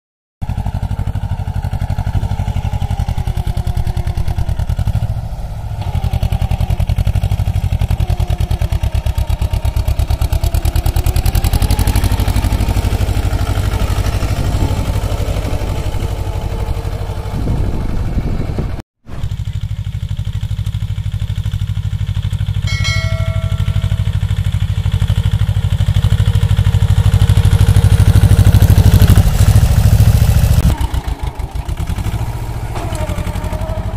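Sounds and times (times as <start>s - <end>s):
tractor diesel engine under load: 0.4s - 33.9s.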